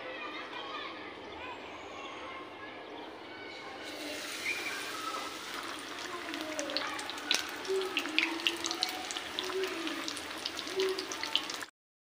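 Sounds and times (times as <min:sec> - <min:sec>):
oil sizzling while deep-frying: 0:03.8 - 0:11.7
sharp crackles in hot oil: 0:03.9 - 0:11.7.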